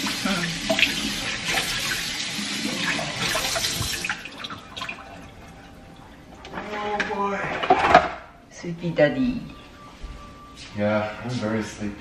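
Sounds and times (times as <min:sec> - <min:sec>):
kitchen tap running: 0:00.0 - 0:05.8.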